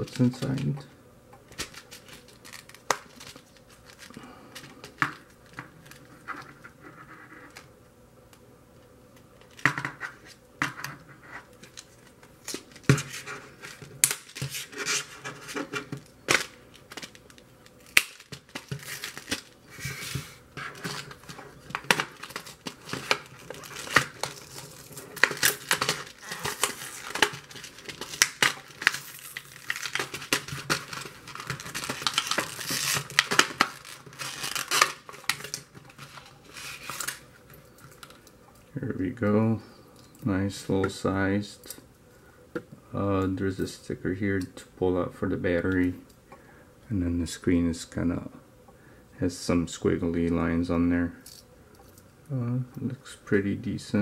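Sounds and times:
plastic packaging crinkling: 1.5s - 6.3s, 11.5s - 38.4s.

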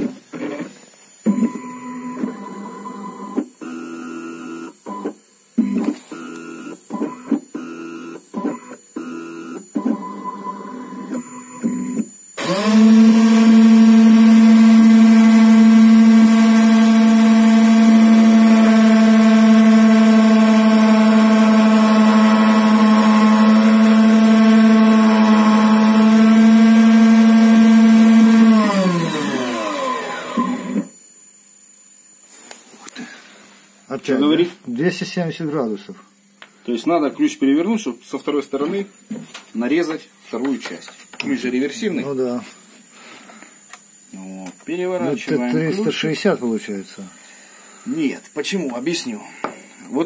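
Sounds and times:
machine motors whining: 0.0s - 31.1s
cutter spindle humming: 6.2s - 31.1s.

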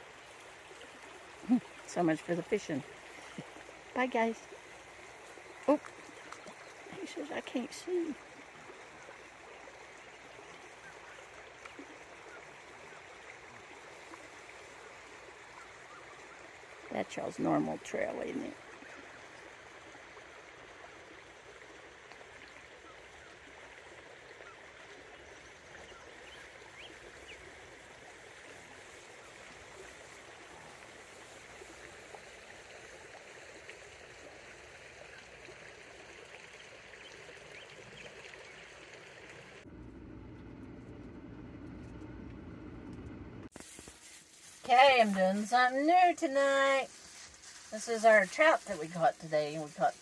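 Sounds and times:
creek water flowing: 0.0s - 50.0s
low dull steady noise: 39.6s - 43.5s.

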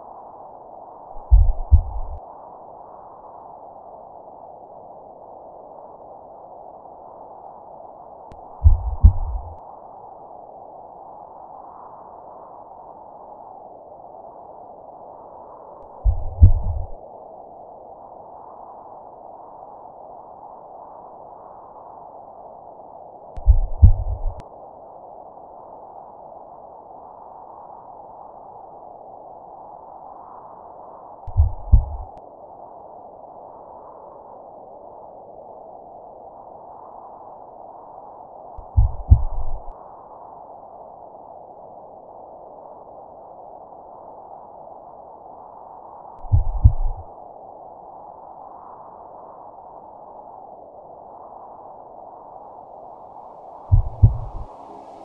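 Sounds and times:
deep double boom: 8.7s - 9.5s, 16.1s - 16.9s, 23.4s - 24.4s, 31.3s - 32.1s, 53.7s - 54.5s
steady mid-pitched drone: 53.4s - 55.0s.

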